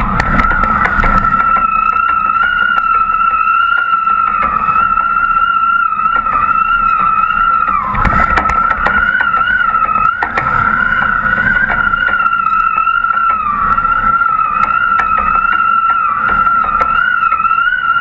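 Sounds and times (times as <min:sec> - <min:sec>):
boat motor running: 0:00.0 - 0:18.0
high-pitched whine: 0:00.0 - 0:18.0
wind: 0:00.0 - 0:18.0
water rumble: 0:04.2 - 0:18.0
small knocks: 0:06.1 - 0:17.6.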